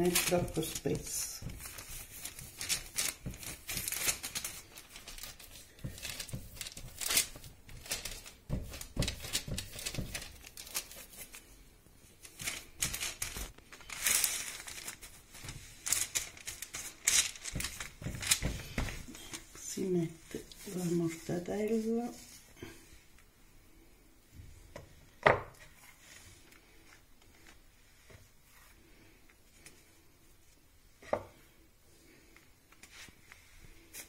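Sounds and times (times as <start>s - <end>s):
baking parchment crinkling: 0.0s - 22.7s.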